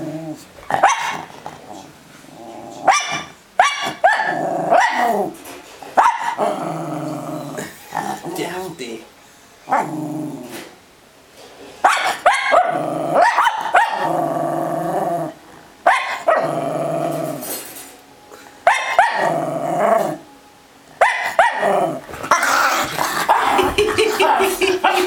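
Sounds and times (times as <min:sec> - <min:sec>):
dog growling: 0:00.0 - 0:03.3, 0:04.2 - 0:05.4, 0:06.2 - 0:08.7, 0:09.7 - 0:10.8, 0:12.5 - 0:17.6, 0:18.9 - 0:20.2, 0:21.2 - 0:25.0
dog barking: 0:00.7 - 0:01.3, 0:02.9 - 0:05.2, 0:06.0 - 0:06.4, 0:11.8 - 0:14.1, 0:15.9 - 0:16.5, 0:18.7 - 0:19.3, 0:21.0 - 0:21.7.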